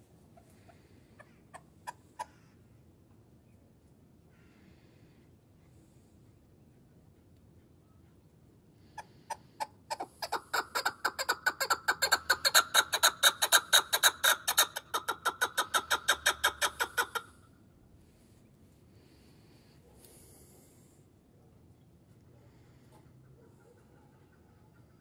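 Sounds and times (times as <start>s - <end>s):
partridge chuck call: 9.3s - 17.3s.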